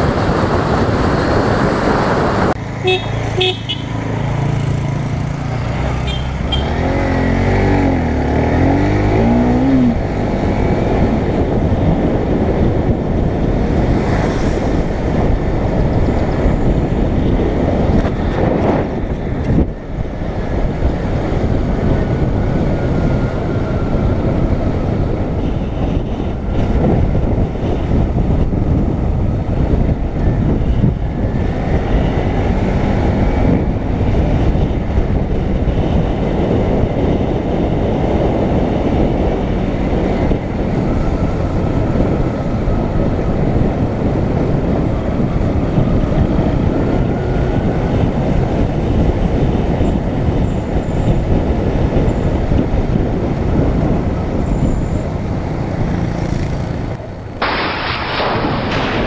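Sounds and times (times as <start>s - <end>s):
wind rush over microphone: 0.0s - 59.0s
motorcycle engine: 2.0s - 29.3s.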